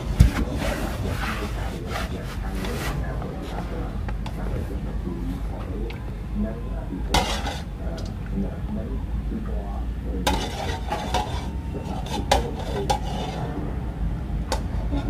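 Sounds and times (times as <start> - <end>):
low background hum: 0.0 - 15.0
utensils clinking against dishes: 7.0 - 8.2, 10.2 - 13.5, 14.5 - 15.0.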